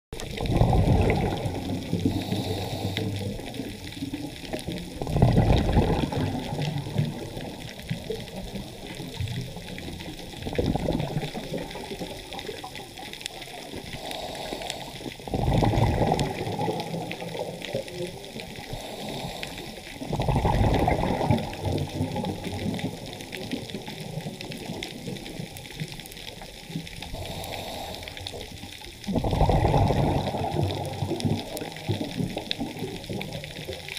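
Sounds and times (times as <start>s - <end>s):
scuba exhaled bubbles rushing: 0.2s - 33.9s
faint hiss: 1.8s - 4.6s, 11.8s - 15.3s, 16.5s - 20.1s, 26.2s - 29.1s.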